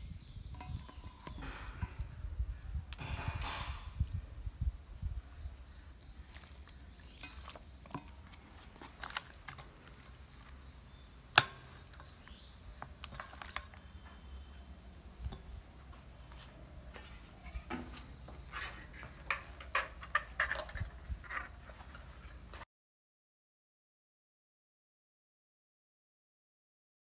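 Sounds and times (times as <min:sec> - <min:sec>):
clicks and knocks in metal bowl: 0:00.4 - 0:02.2, 0:06.3 - 0:10.7, 0:11.3 - 0:13.8, 0:18.6 - 0:22.4
wet squelches of raw chicken: 0:05.6 - 0:14.8.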